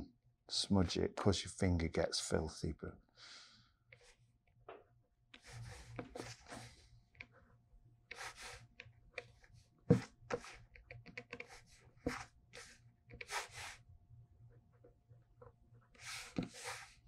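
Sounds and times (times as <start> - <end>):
pen tip scratching on paper: 5.4 - 6.8, 8.1 - 13.8, 15.9 - 17.0.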